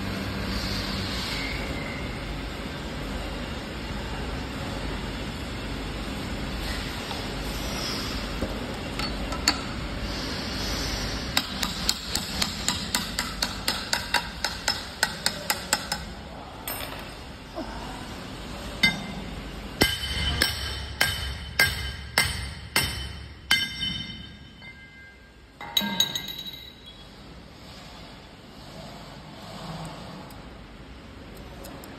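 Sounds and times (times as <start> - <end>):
hammer striking steel: 11.4 - 16.1, 18.8 - 27.0.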